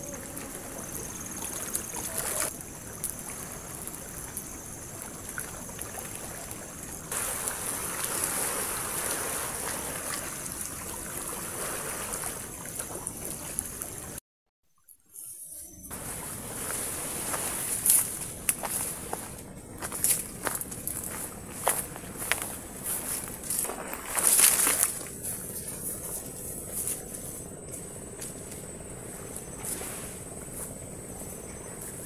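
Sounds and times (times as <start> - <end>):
waves on a beach: 0.0 - 14.2, 15.9 - 27.0
campfire crackles: 0.1 - 9.5, 15.9 - 30.8.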